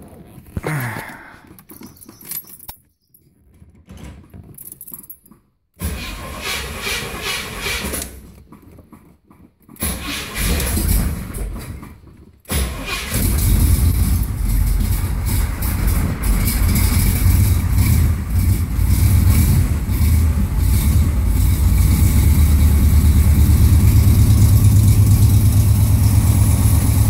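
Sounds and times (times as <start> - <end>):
keys jingling: 1.5 - 5.5
car engine cranking: 4.4 - 27.0
car engine running loud: 12.8 - 27.0.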